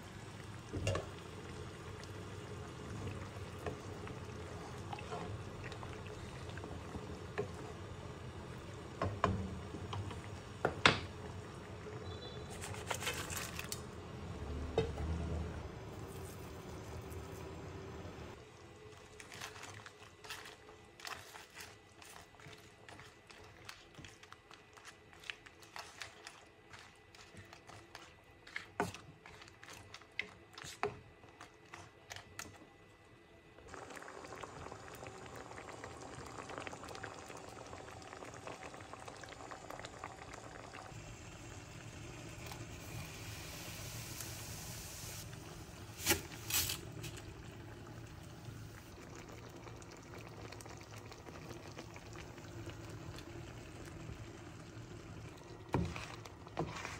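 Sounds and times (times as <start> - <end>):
sauce bubbling: 0.0 - 12.4, 33.7 - 56.9
wooden spoon stirring in pan: 19.0 - 32.4, 55.6 - 56.9.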